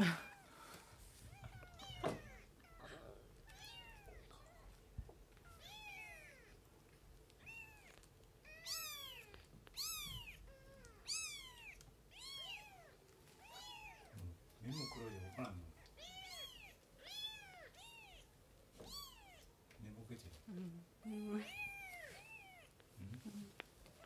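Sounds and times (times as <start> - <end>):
kitten mewing: 7.4 - 19.5.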